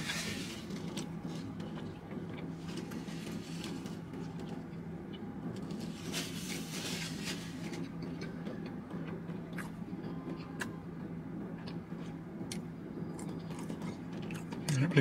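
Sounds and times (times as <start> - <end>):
napkin rustling: 5.8 - 7.8.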